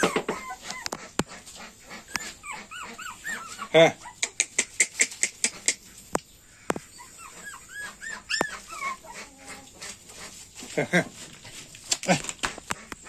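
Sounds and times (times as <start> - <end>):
puppies whimpering: 0.0 - 10.4.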